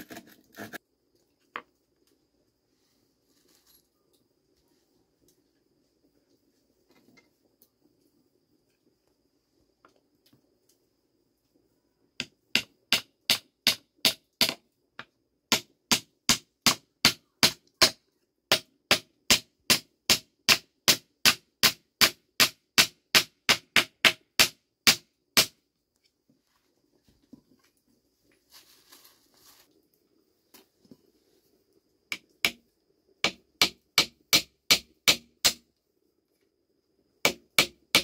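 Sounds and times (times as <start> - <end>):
hammer striking nails: 12.2 - 14.6, 15.5 - 25.6, 32.1 - 32.6, 33.2 - 35.6, 37.3 - 38.0
plastic bag rustling: 28.5 - 29.7.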